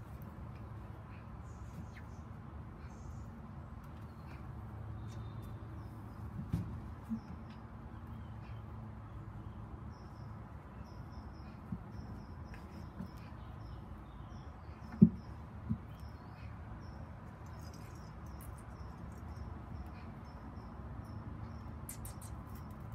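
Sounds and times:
faint high chirping: 7.0s - 22.9s.

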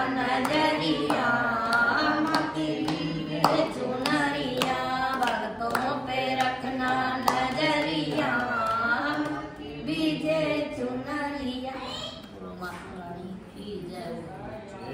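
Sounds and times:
group singing devotional song: 0.0s - 11.8s
hand claps: 0.1s - 9.4s.

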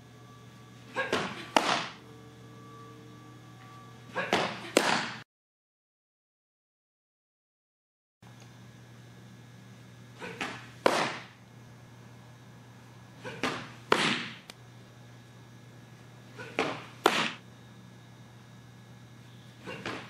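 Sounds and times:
ball smacking into catcher's mitt: 1.1s - 2.0s, 10.4s - 11.3s, 13.4s - 14.4s, 16.6s - 17.4s.

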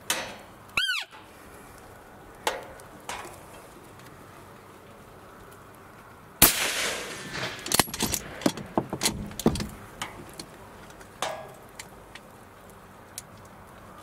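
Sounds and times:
rifle shot echoing: 6.4s - 8.4s
short rattle: 6.6s - 10.2s
sharp clicks and knocks: 7.2s - 12.3s.

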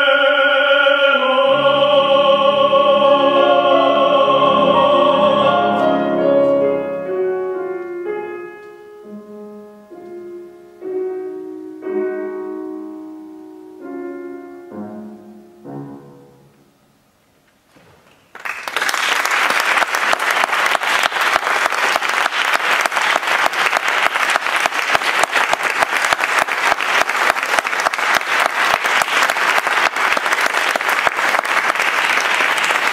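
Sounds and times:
audience applauding: 18.3s - 32.9s.

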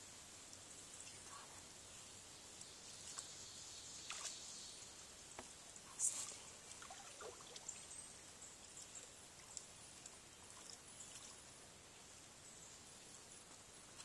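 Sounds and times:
faint outdoor hiss: 0.0s - 14.0s
soft ticks: 2.6s - 3.3s, 8.8s - 11.4s.

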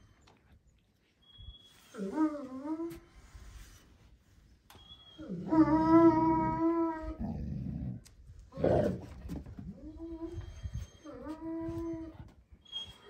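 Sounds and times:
dog whining: 5.0s - 7.5s, 9.7s - 13.0s
dog growling: 6.2s - 9.1s.

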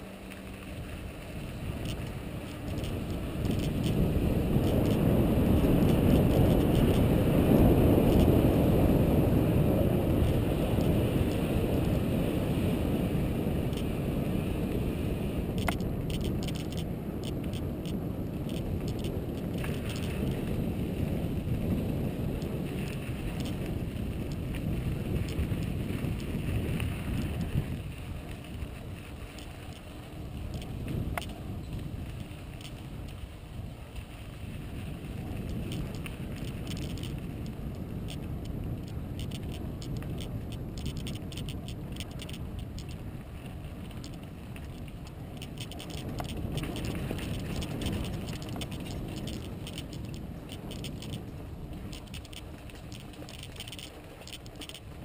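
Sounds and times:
bike tyres rolling on dirt: 0.0s - 55.0s
wind buffeting microphone: 0.0s - 55.0s
sharp clicks and rattles: 1.6s - 8.3s, 13.7s - 13.9s, 15.5s - 20.5s, 22.4s - 33.2s, 35.4s - 55.0s.

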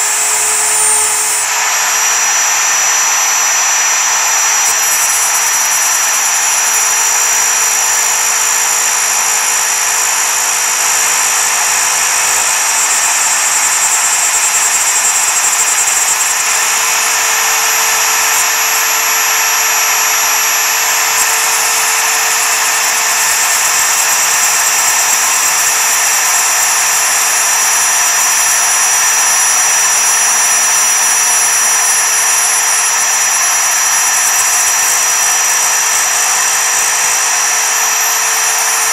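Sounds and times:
end mill rasping through metal: 0.0s - 12.5s
router spindle whining: 0.0s - 38.9s.

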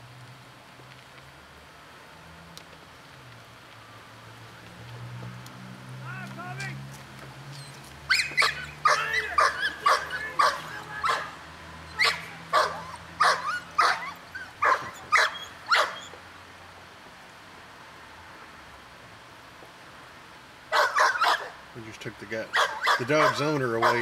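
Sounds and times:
dog barking: 8.1s - 11.4s, 12.0s - 16.1s, 20.7s - 21.6s, 22.5s - 24.0s.

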